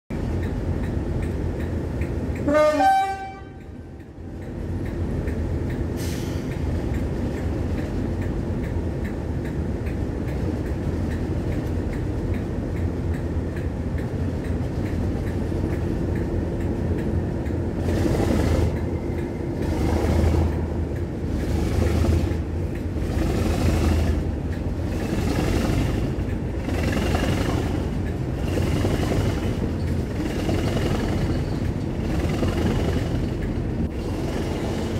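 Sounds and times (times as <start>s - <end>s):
diesel locomotive rumble: 0.1s - 34.9s
wheels clicking over rail joints: 0.1s - 34.9s
locomotive horn toot: 2.4s - 3.8s.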